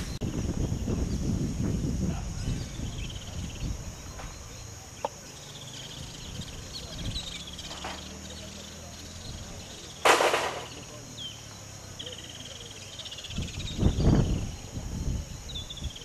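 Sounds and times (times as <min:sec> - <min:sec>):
high insect drone: 0:00.0 - 0:16.0
birds trilling: 0:01.9 - 0:16.0.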